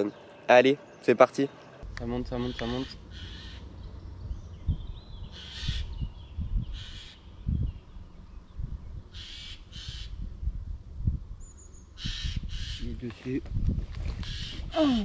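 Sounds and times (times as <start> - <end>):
crow cawing: 2.4 - 3.7, 5.4 - 5.9, 6.8 - 7.2, 9.2 - 10.2, 12.0 - 12.8.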